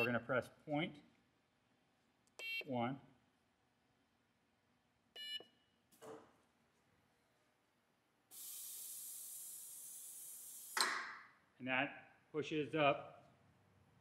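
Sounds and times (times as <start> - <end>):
keypad electronic beep: 5.2 - 5.5
steady air hiss: 8.3 - 10.8.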